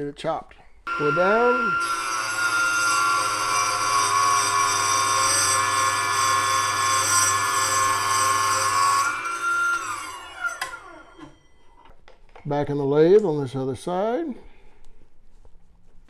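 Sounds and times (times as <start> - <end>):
chop saw cutting metal rod: 0.9 - 11.3.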